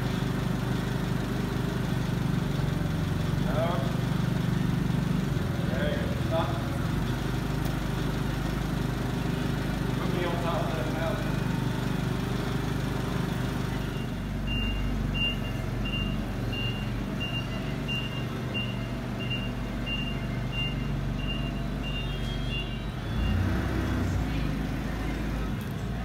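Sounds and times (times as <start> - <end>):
forklift engine running: 0.0 - 26.0
backup alarm beeping: 13.8 - 23.5.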